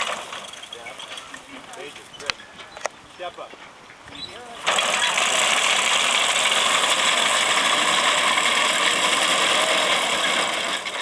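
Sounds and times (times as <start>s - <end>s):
reaper mechanical clatter: 0.0s - 1.5s, 4.6s - 11.0s.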